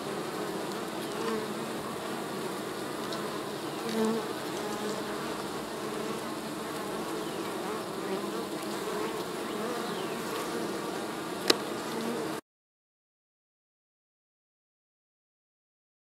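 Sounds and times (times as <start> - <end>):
bees buzzing: 0.0 - 12.4.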